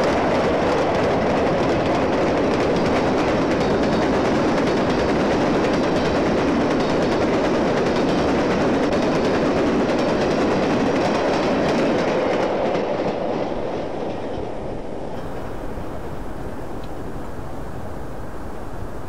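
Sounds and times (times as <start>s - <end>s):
model train wheels rumbling: 15.1s - 19.0s.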